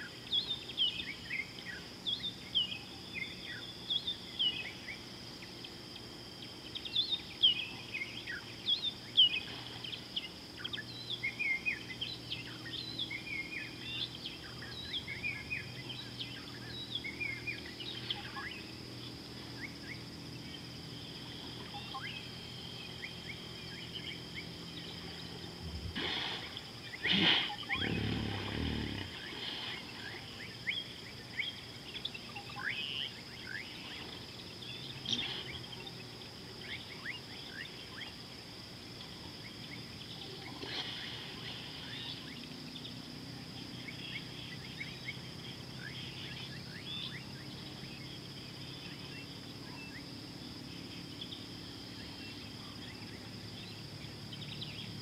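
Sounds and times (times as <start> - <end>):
high insect hum: 0.0 - 55.0
low animal call: 25.0 - 29.9.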